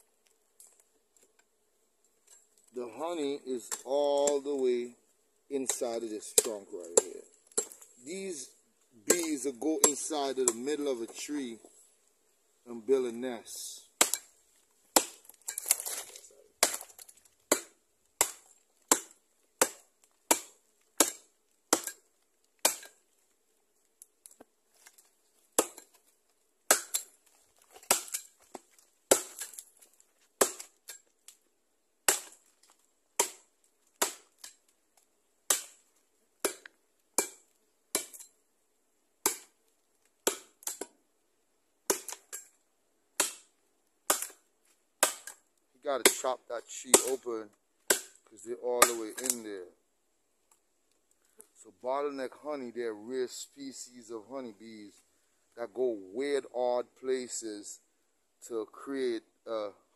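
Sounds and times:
machete chopping wood: 5.7 - 7.9, 9.1 - 10.7, 14.0 - 14.3, 14.9 - 23.0, 25.6 - 26.0, 26.7 - 29.7, 30.4 - 31.0, 32.0 - 32.5, 33.2 - 34.6, 35.5 - 35.8, 36.4 - 38.3, 39.2 - 39.6, 40.2 - 40.9, 41.9 - 42.5, 43.2 - 43.5, 44.1 - 44.4, 45.0 - 45.4, 46.0 - 46.2, 46.9 - 47.2, 47.8 - 48.2, 48.8 - 49.4.

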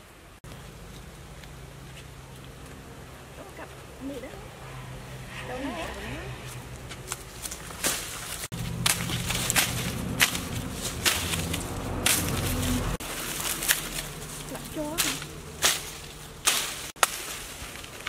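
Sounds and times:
knife chopping plant stalk: 8.6 - 12.6.

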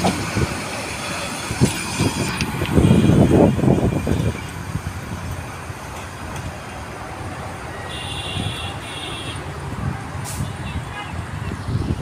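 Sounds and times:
train wheels clattering on rails: 0.0 - 2.8.

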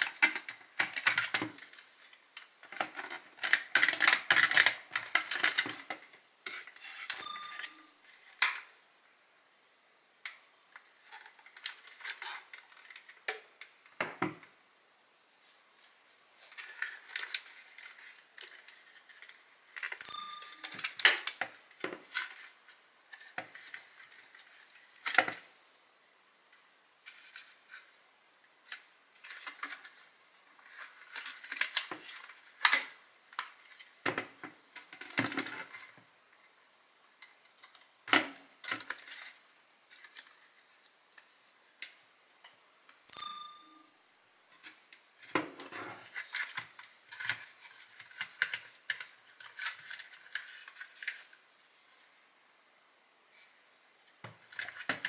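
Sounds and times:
plastic parts clicking and tapping: 0.0 - 1.8, 2.4 - 7.2.

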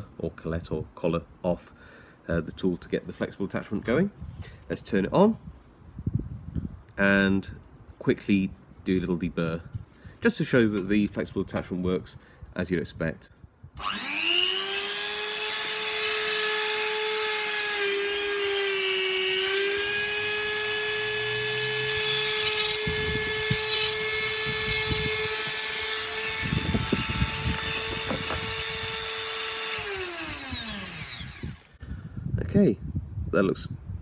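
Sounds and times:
rotary tool whine: 13.8 - 31.8.

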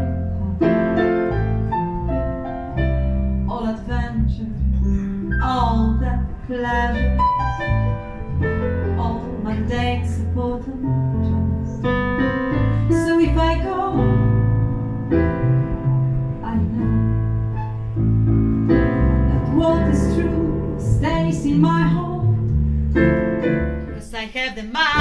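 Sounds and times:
digital piano accompaniment: 0.0 - 24.2
woman singing: 3.5 - 7.2, 8.9 - 12.0, 12.9 - 14.5, 16.4 - 17.3, 19.3 - 22.4, 24.0 - 25.0.

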